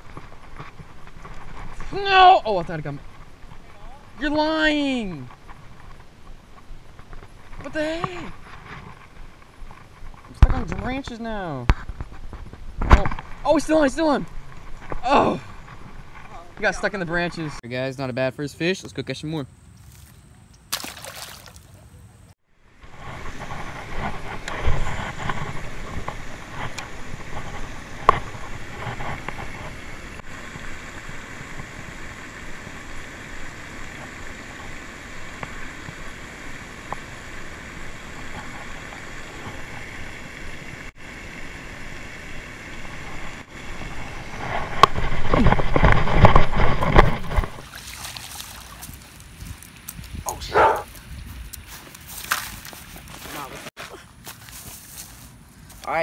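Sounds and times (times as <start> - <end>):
fountain splashing: 20.7 - 21.8, 25.5 - 44.9, 47.5 - 49.9
wind on microphone: 48.7 - 51.7.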